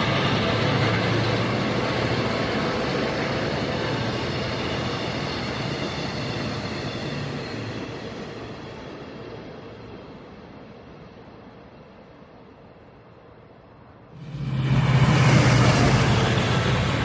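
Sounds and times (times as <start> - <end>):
locomotive engine drone: 0.0 - 12.8, 13.9 - 17.0
train wheels rumbling on rails: 0.0 - 17.0.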